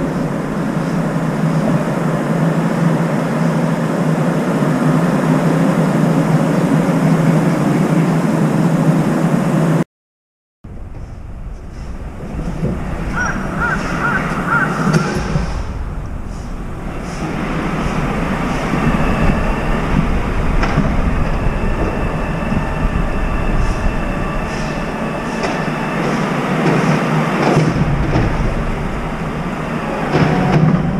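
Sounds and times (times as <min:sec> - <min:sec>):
wind: 0:00.0 - 0:09.8, 0:10.6 - 0:30.9
traffic hum: 0:10.7 - 0:30.9
crow cawing: 0:13.1 - 0:14.9.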